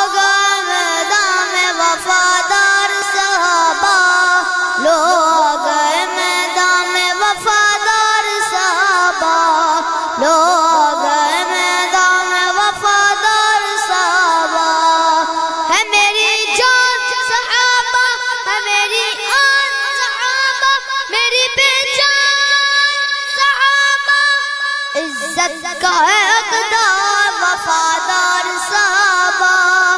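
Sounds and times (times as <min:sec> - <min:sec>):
boy singing into a microphone: 0:00.0 - 0:29.9.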